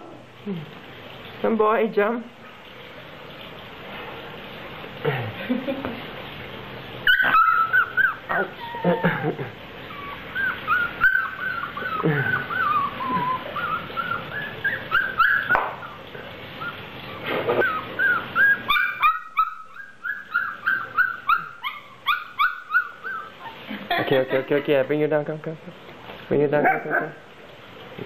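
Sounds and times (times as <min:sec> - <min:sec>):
puppy whining: 0:07.0 - 0:24.1.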